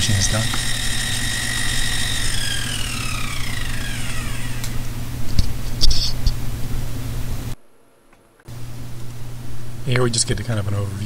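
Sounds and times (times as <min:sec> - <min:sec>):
milling machine spindle whining: 0:00.0 - 0:05.3
low motor hum: 0:00.0 - 0:07.6
sharp clicks: 0:00.4 - 0:06.4.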